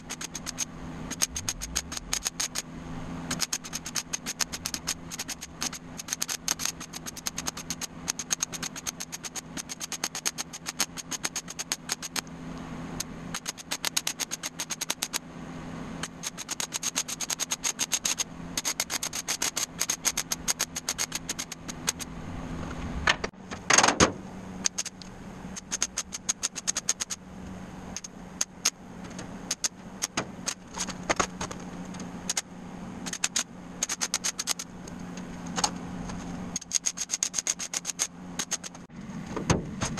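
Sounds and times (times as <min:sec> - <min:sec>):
welding arc crackling: 0:00.0 - 0:02.6, 0:03.3 - 0:12.2
steady low hum: 0:00.0 - 0:39.9.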